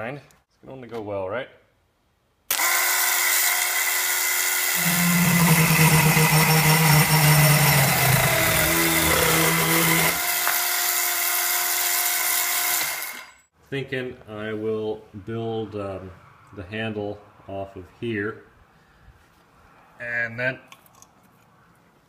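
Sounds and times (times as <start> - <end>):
chainsaw cutting into branch: 2.5 - 13.4
electric chainsaw whining: 2.5 - 13.5.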